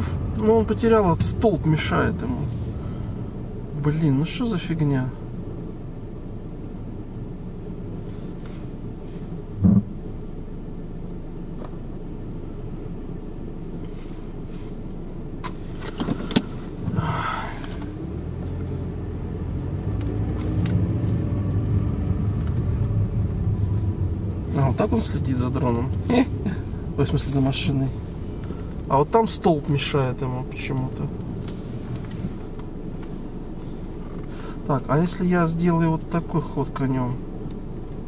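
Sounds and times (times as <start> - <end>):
car driving rumble: 0.0 - 38.0
loud thump: 9.6 - 9.9.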